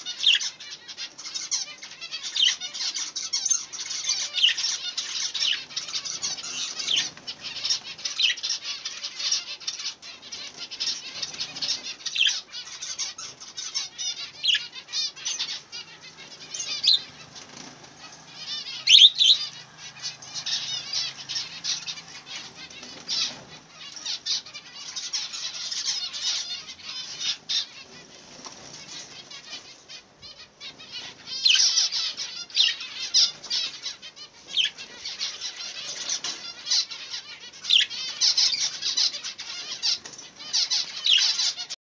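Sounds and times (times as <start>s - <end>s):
budgerigars chattering and chirping: 0.0s - 41.8s.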